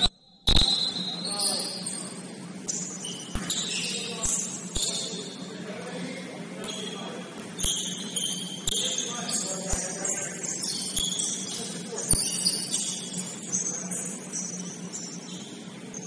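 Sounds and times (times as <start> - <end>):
sneaker squeaks: 0.0 - 6.0, 6.6 - 16.0
steady low hum: 0.0 - 16.0
basketball bouncing on wood: 3.3 - 3.6.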